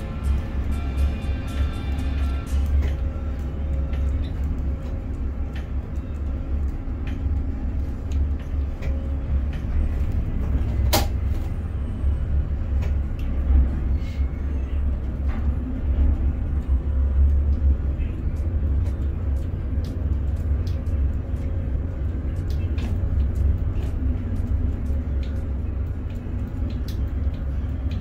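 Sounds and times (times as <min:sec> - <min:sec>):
crane machinery drone: 0:00.0 - 0:28.0.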